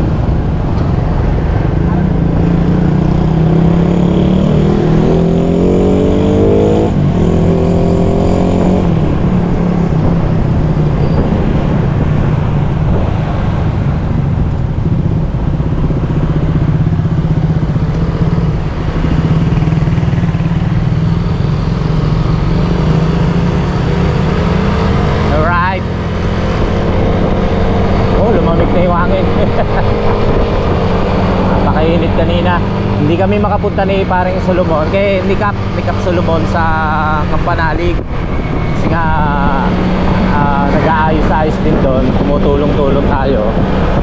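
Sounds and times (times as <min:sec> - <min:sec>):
motorcycle engine accelerating: 0:00.0 - 0:44.0
wind and road noise: 0:00.0 - 0:44.0.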